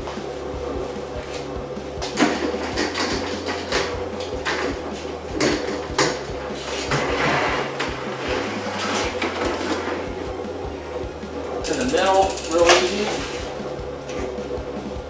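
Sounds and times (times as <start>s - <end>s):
trolley rolling rattle on track: 11.6s - 13.5s.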